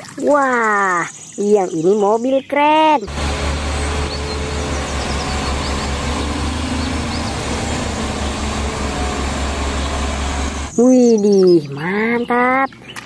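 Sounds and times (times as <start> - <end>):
diesel engine rumbling: 2.8 - 10.8.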